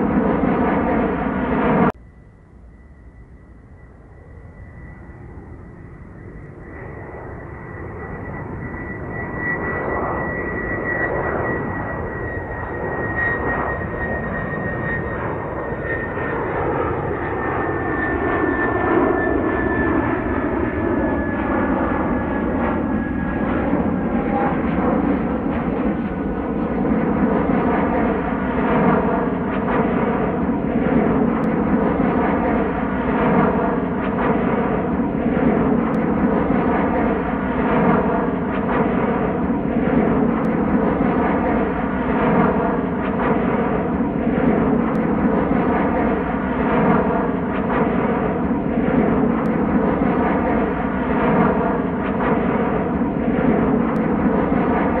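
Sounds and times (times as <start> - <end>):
jet airliner engine roar: 0.0 - 55.0
high whine falling in pitch: 2.0 - 9.4.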